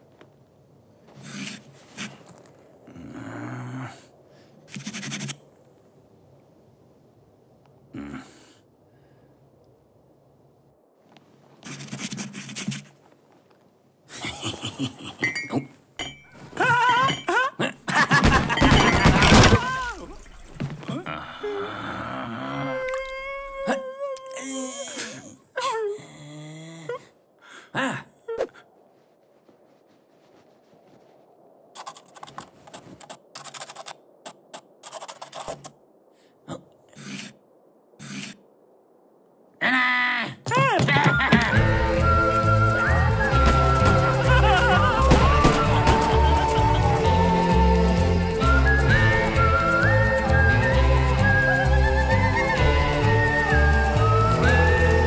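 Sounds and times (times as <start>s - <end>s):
pencil scratching on rough wall: 4.7s - 5.4s, 11.6s - 13.0s, 38.0s - 38.4s
cartoon character snickering laugh: 44.2s - 46.9s.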